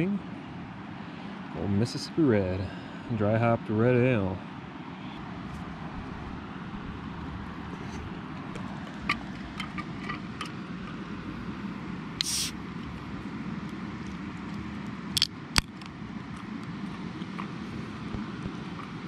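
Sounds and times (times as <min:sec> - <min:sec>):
low background rush: 0:00.0 - 0:19.0
can handling clicks: 0:12.2 - 0:12.5
can tab clicks: 0:12.2 - 0:12.5
can opening fizz: 0:12.2 - 0:12.6.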